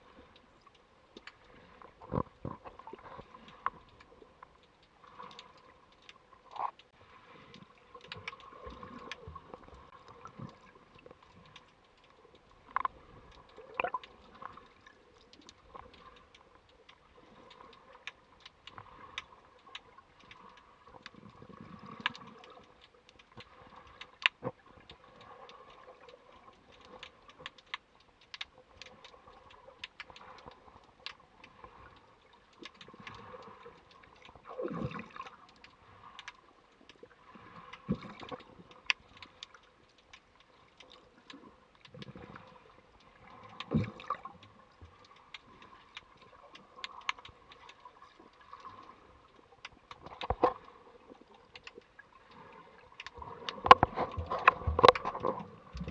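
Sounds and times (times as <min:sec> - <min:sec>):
underwater clicks and crackles: 0:00.0 - 0:55.9
water swishes: 0:00.0 - 0:55.9.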